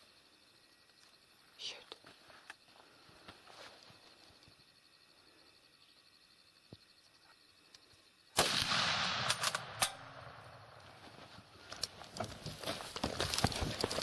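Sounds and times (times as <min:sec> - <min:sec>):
rifle shot: 0:08.4 - 0:10.8
footsteps crunching through dry brush: 0:10.8 - 0:14.0.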